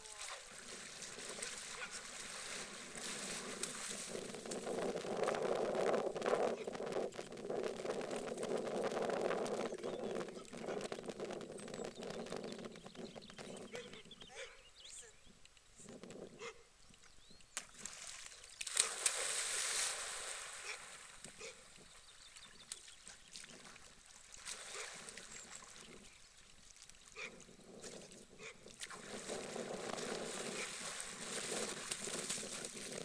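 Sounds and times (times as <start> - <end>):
small splashes of swimming: 0.0 - 4.7, 17.6 - 27.2, 28.7 - 33.0
dog splashing into water: 17.7 - 21.1.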